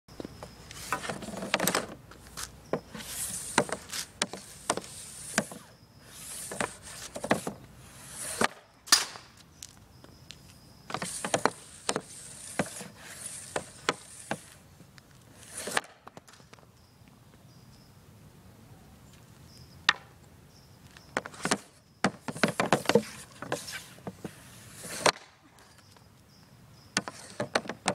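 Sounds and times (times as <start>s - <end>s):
hockey stick swishing across pad: 2.4s - 9.0s, 10.9s - 14.6s, 15.3s - 16.0s, 21.2s - 25.3s.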